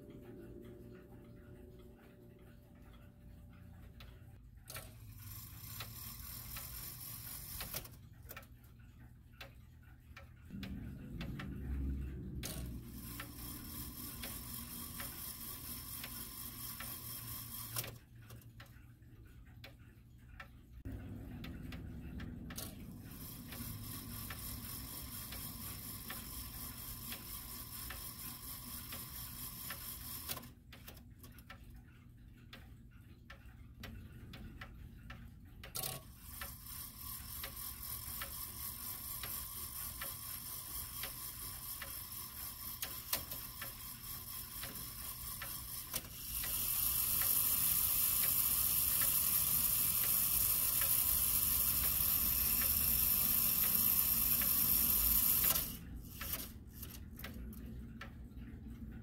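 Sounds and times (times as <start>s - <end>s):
clock ticking: 0.0s - 59.0s
loud clock click: 4.7s - 8.5s, 10.2s - 18.7s, 20.8s - 31.6s, 35.6s - 58.2s.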